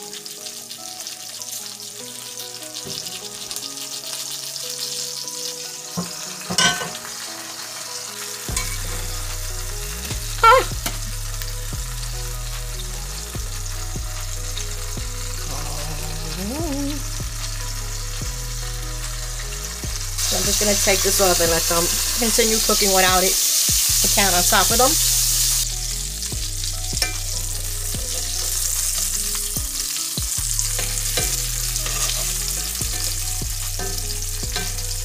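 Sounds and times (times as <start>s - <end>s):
mushrooms sizzling in oil: 0.0s - 35.0s
metallic skillet clanks and scrapes: 6.0s - 7.2s, 8.5s - 9.0s, 27.0s - 27.4s, 30.6s - 35.0s.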